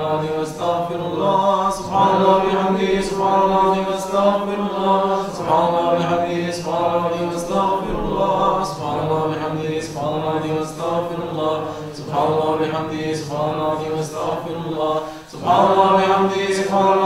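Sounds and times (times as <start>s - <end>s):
voices chanting devotional chant: 0.0s - 17.0s.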